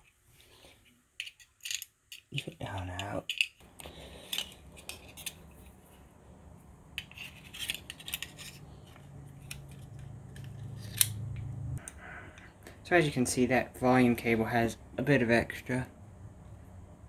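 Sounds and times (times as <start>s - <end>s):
small parts clicking: 1.2s - 5.5s
low hum: 3.6s - 12.8s.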